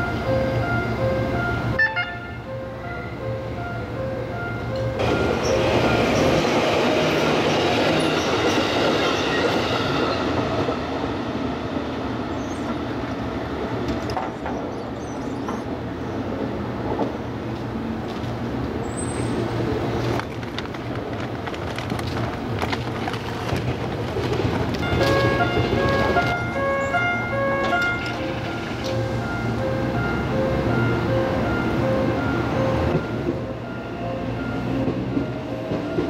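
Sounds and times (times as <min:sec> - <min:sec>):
electric train passing: 0:00.0 - 0:36.0
street noise with low hum: 0:09.6 - 0:36.0.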